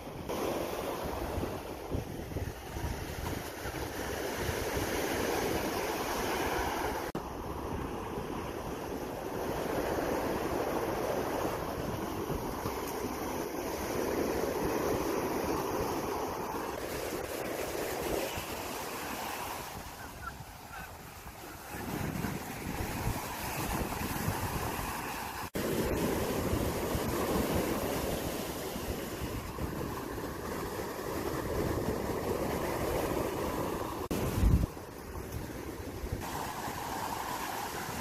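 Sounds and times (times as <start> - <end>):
surf breaking on sand: 0.0 - 38.0
wind rumbling on microphone: 0.1 - 38.0.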